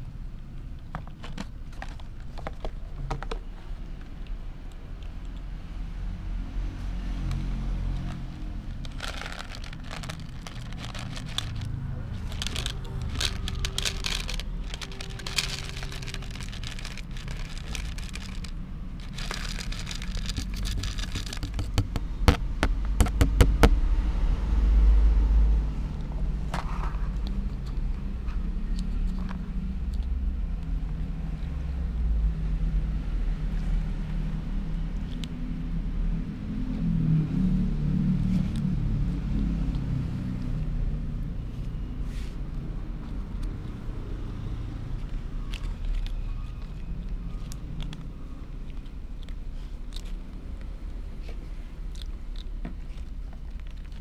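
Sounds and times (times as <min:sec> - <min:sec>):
steady low motor drone: 0:05.4 - 0:42.0
plastic bag crinkling: 0:08.0 - 0:21.8
kibble rattling into plastic tub: 0:08.7 - 0:21.8.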